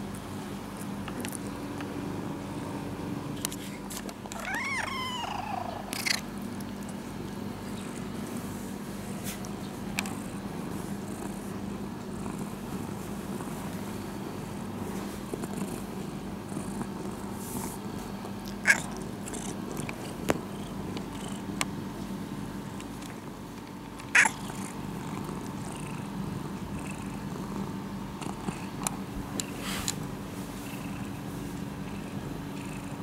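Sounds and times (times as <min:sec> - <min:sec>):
cat purring: 0:09.9 - 0:21.5, 0:24.1 - 0:29.9, 0:30.5 - 0:33.0.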